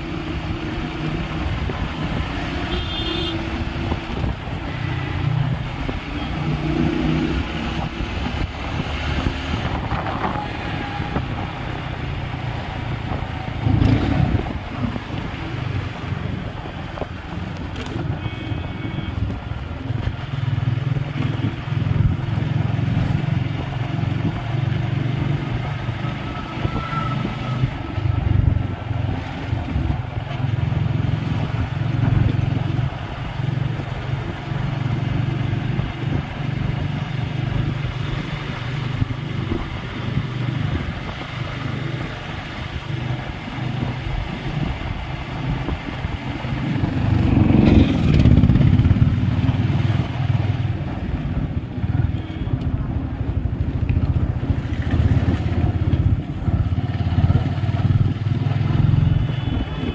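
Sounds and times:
traffic noise: 0.0s - 59.9s
motorcycle engine running: 42.4s - 59.9s.

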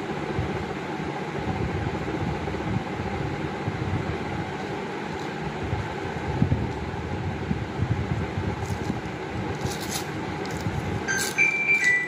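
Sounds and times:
foil wrapper crinkling: 8.6s - 12.0s.

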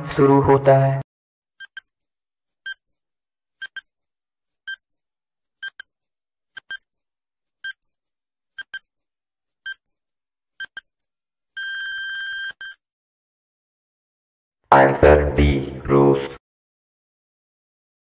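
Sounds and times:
long steady beep: 11.6s - 12.8s
short electronic beeps: 11.6s - 12.8s.

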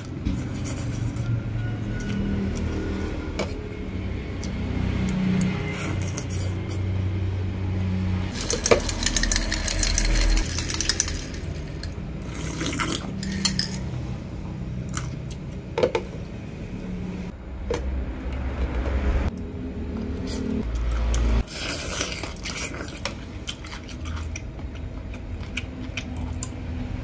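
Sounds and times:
ice rattling in a glass: 8.3s - 13.9s
utensils clinking on dishes: 8.3s - 14.0s.

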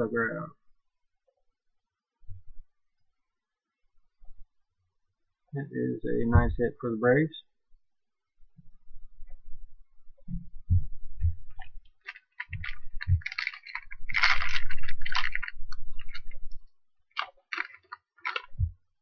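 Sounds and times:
foil wrapper crinkling: 11.5s - 18.7s
cards thumping: 11.6s - 16.4s, 17.2s - 18.7s.

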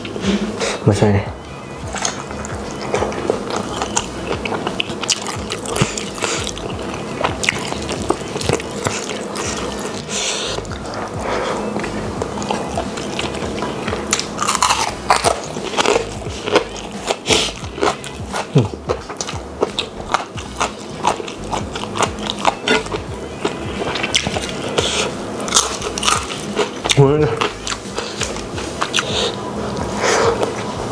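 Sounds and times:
wet biting and chewing: 1.9s - 11.0s, 11.7s - 30.6s
crunching: 11.8s - 29.2s.

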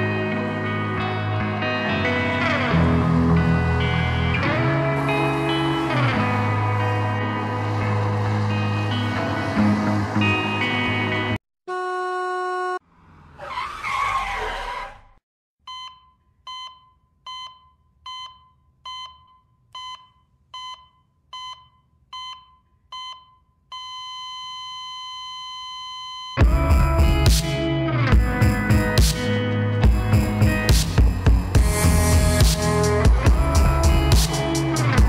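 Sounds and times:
car horn blast: 11.7s - 12.8s
tyres screeching: 13.3s - 15.2s
heart monitor beeps: 15.7s - 26.4s.

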